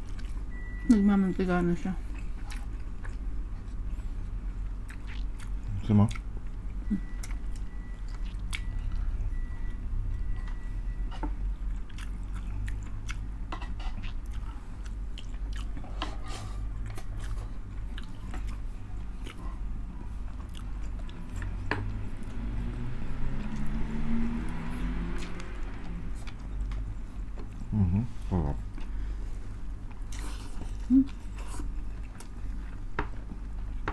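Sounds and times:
close-miked chewing: 0.0s - 1.0s, 2.0s - 9.8s, 11.5s - 22.4s, 24.4s - 33.7s
person humming: 27.7s - 28.6s, 30.8s - 31.2s.

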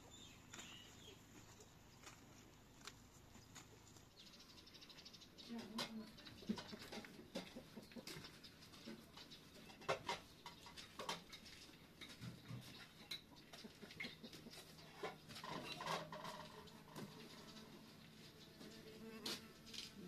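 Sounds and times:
clicks and knocks of pots and trays: 5.5s - 17.7s.

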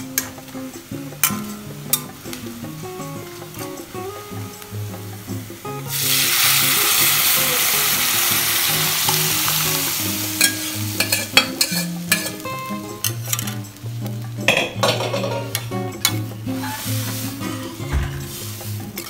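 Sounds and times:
loud sizzle of frying: 0.0s - 19.0s
ladle scraping a pan: 10.4s - 13.6s, 14.5s - 19.0s.

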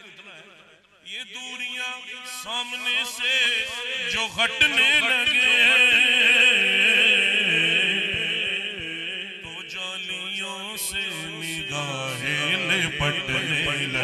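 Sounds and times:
man singing into a microphone: 0.0s - 14.0s.

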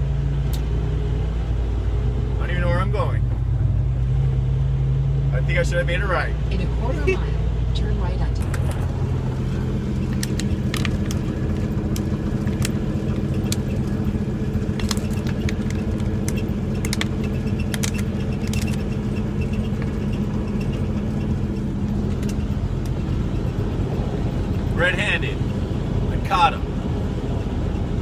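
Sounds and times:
truck engine drone: 0.0s - 28.0s
light clicks and rattles: 14.6s - 21.3s.

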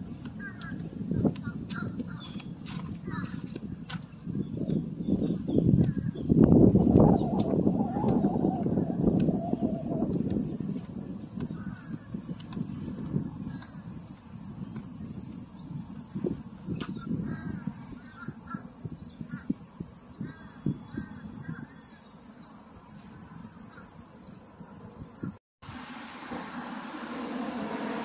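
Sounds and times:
high-pitched insect buzz: 3.1s - 25.4s.

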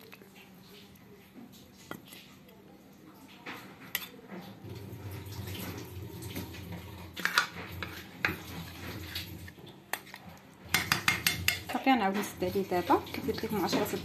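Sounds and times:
liquid sloshing: 3.2s - 14.0s
spoon clinking against pot: 9.9s - 11.8s.

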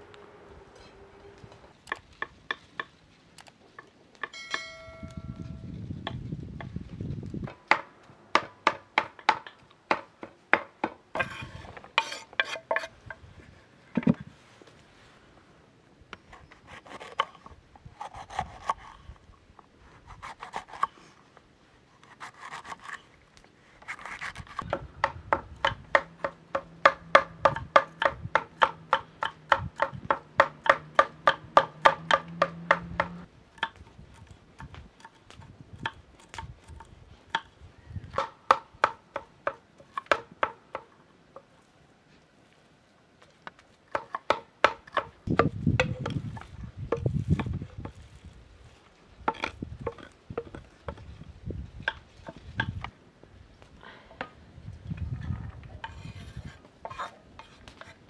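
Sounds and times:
knife chopping on wooden board: 24.0s - 33.2s.

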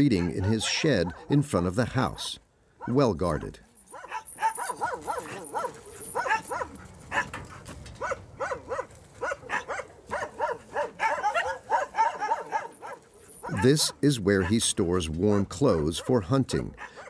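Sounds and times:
dog barking: 0.0s - 1.4s, 2.8s - 7.4s, 8.0s - 14.6s, 16.8s - 17.0s.

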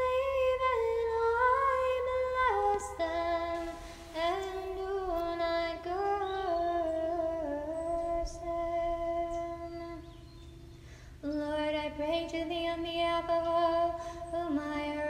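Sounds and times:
woman singing slow melody: 0.0s - 15.0s.

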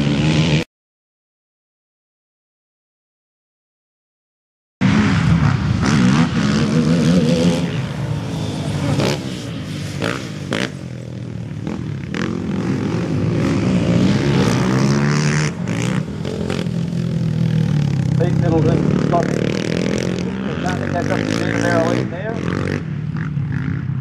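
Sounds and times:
quad bike engines revving: 0.0s - 0.7s, 4.8s - 24.0s.

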